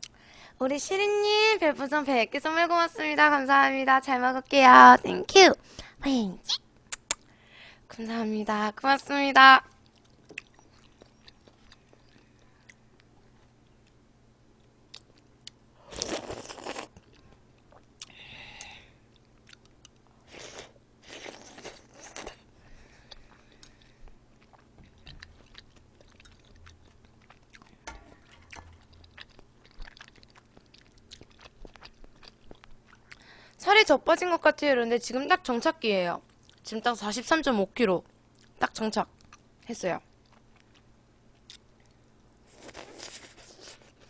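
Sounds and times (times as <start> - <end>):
quiet chewing: 9.8 - 33.5, 36.3 - 36.7, 40.1 - 44.0.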